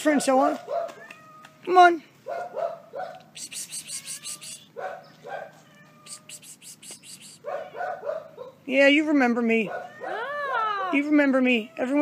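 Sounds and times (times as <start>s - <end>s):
cat meowing: 0.9s - 1.6s, 3.8s - 4.8s, 5.6s - 7.8s, 9.8s - 12.0s
sharp clicking sounds: 6.2s - 7.4s.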